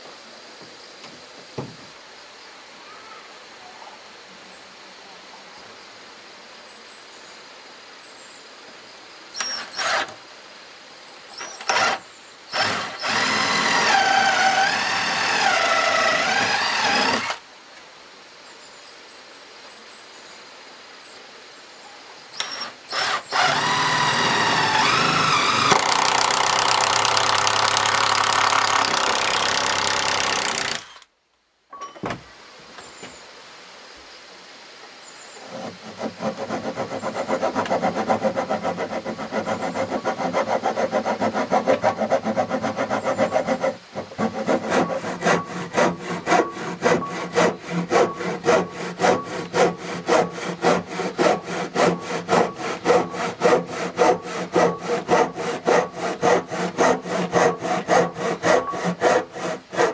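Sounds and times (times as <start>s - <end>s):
cordless drill boring into wood: 9.4s - 10.2s, 11.4s - 17.4s, 22.4s - 31.1s.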